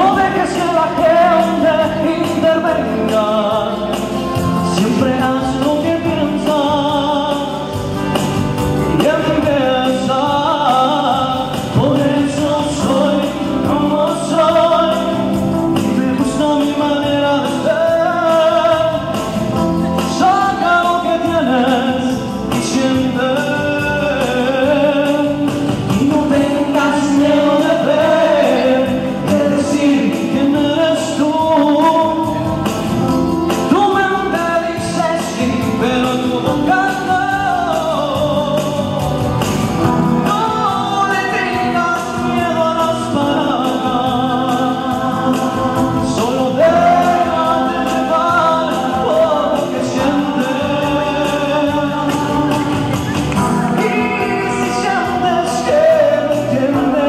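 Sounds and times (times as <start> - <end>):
man singing: 0.0 - 57.0
musical accompaniment: 0.0 - 57.0
backing vocalists singing: 8.8 - 32.6, 33.6 - 57.0.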